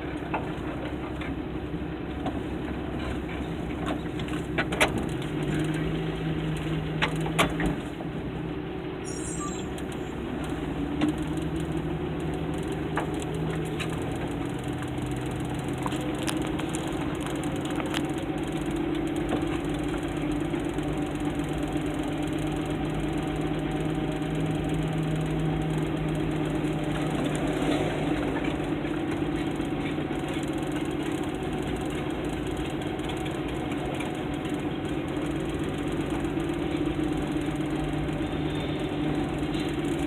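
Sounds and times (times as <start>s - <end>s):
van engine running: 0.0s - 40.0s.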